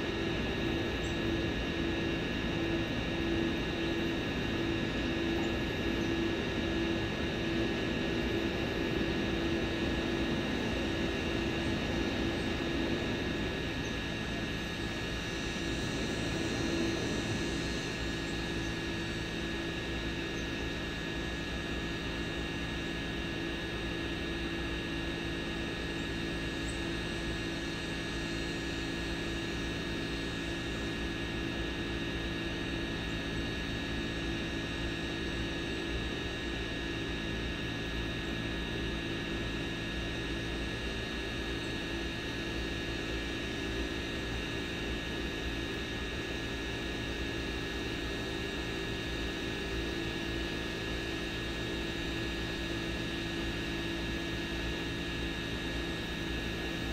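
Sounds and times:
aircraft propellers whining: 0:00.0 - 0:20.9.

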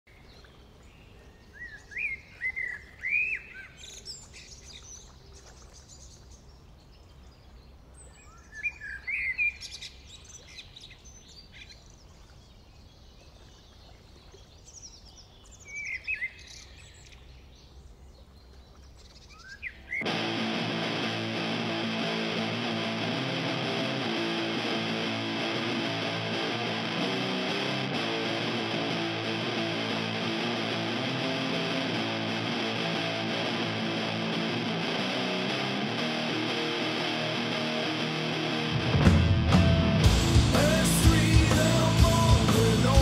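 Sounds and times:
birds chirping: 0:00.1 - 0:39.3
rock music with electric guitar: 0:20.0 - 0:43.0.

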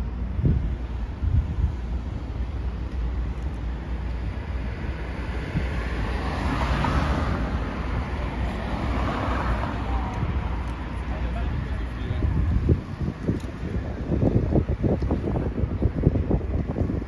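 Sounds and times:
steady low rumble: 0:00.0 - 0:06.1, 0:09.6 - 0:17.0
rushing tyre noise: 0:00.0 - 0:17.0
vehicles passing: 0:00.0 - 0:17.0.

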